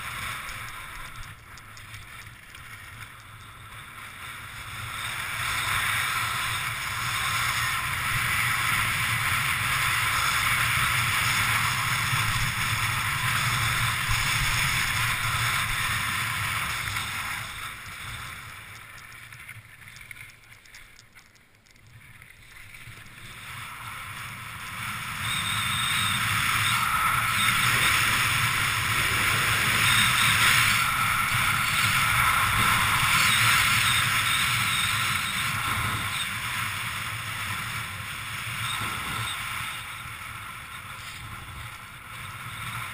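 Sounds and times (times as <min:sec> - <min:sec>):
wind rushing over microphone: 0:23.0 - 0:42.9.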